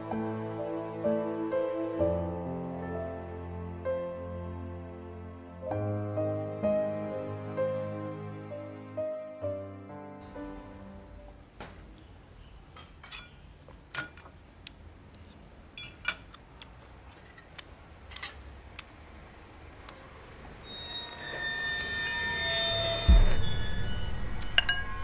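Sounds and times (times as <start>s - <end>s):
soft background music: 0.0s - 11.6s
metal spoon clinking on ceramic: 12.8s - 13.4s, 15.8s - 16.3s.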